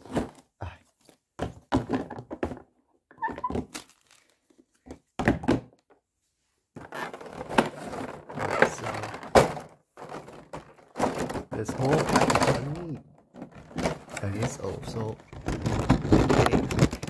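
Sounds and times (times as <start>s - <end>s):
plastic trays knocking: 5.2s - 5.8s, 6.8s - 17.0s
plastic crinkling: 11.6s - 17.0s.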